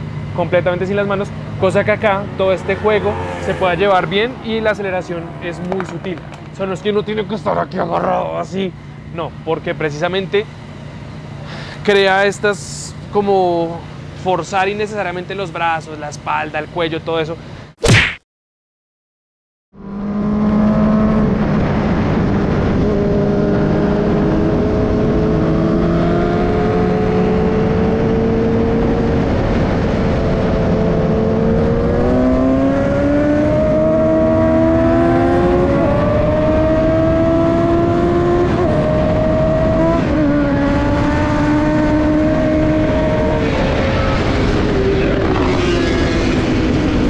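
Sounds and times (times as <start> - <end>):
motorcycle engine accelerating: 0.0 - 8.3, 19.7 - 47.0
wind rushing over microphone: 20.0 - 47.0.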